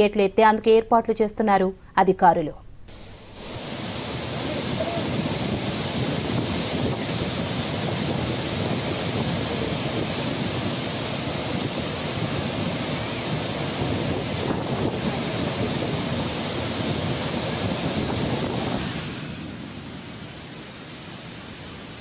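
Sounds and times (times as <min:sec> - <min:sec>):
water rushing through spillway: 0:03.3 - 0:19.6.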